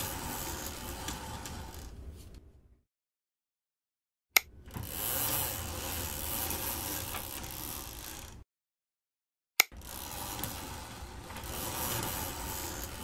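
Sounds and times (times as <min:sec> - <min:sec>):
steady mechanical noise: 0:09.7 - 0:13.0.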